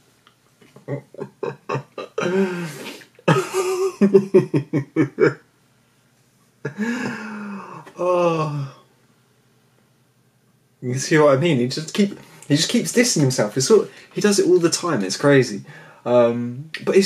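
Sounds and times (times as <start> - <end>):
man laughing: 0.7 - 5.4, 6.6 - 8.7.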